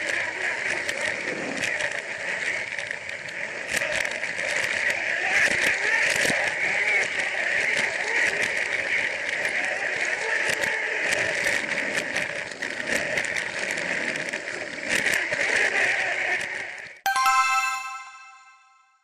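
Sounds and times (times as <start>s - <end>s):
bright chime: 17.1s - 19.0s.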